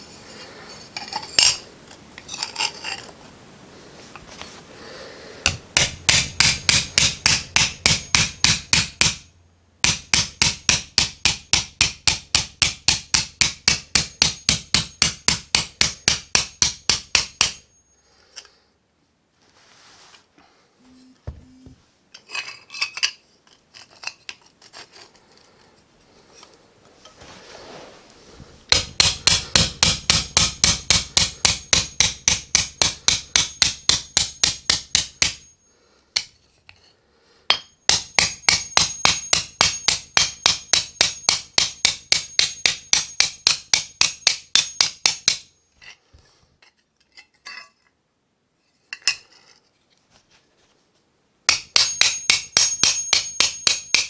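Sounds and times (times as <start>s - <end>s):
hammer striking sheet metal: 37.5s - 45.5s, 51.5s - 54.0s.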